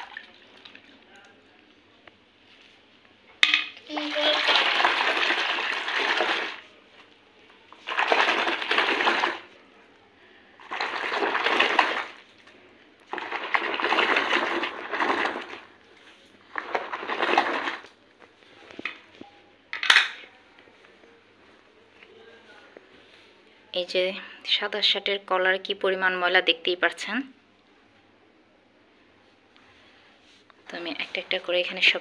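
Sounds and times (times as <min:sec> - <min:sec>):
water swishing in a plastic basin: 0:00.0 - 0:01.6, 0:03.9 - 0:19.1.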